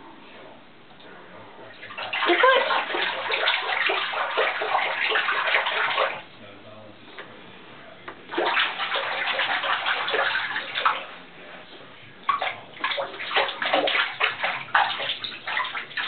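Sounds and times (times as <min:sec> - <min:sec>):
water splashing in a plastic tub: 0:01.7 - 0:06.3, 0:08.2 - 0:11.3, 0:12.2 - 0:16.0.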